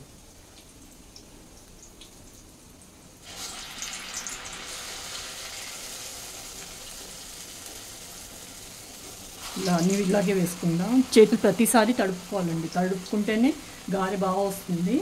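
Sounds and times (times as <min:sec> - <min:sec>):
batter sizzling in hot oil: 0:03.2 - 0:15.0.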